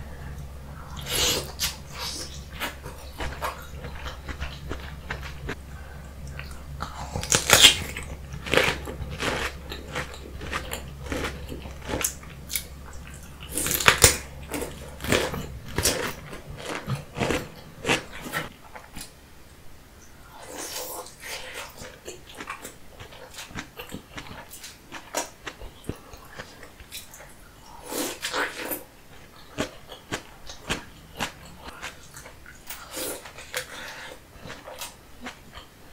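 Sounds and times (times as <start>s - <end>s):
wet chewing and mouth sounds: 0.3s - 19.2s, 20.4s - 35.8s
crunchy bites into cucumber: 7.1s - 12.7s.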